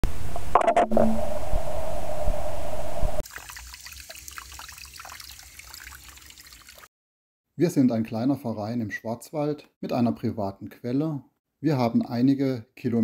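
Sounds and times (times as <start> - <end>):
water trickling from burst pipe: 3.2 - 6.9.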